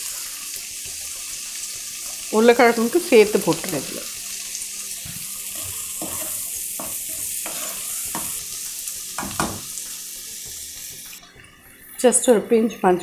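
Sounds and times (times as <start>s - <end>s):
vegetables sizzling in oil: 0.0s - 13.0s
wooden spatula scraping pan: 5.6s - 8.4s.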